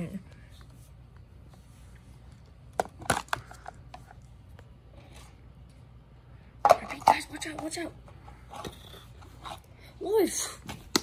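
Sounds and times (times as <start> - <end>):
faint room hum: 0.0 - 11.0.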